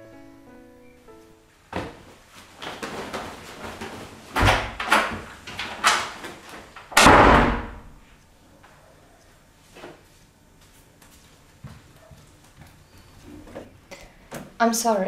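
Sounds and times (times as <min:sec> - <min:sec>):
footsteps knocking and thudding: 0:01.7 - 0:08.0, 0:11.0 - 0:12.8
door slamming shut: 0:04.4 - 0:06.2, 0:06.9 - 0:08.0.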